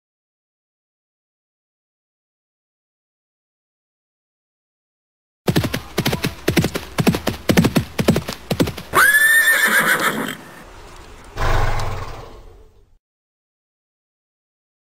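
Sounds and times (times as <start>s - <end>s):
horse hooves clip-clopping: 5.5s - 10.2s
horse whinny: 8.9s - 10.6s
short rough sound: 11.4s - 12.8s.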